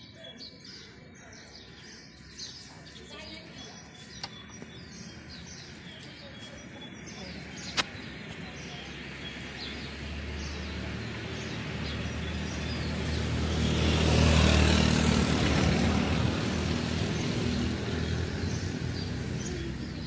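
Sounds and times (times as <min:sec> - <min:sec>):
birds chirping: 0:00.0 - 0:20.0
van driving past: 0:09.0 - 0:20.0
motor scooter driving past: 0:09.8 - 0:20.0.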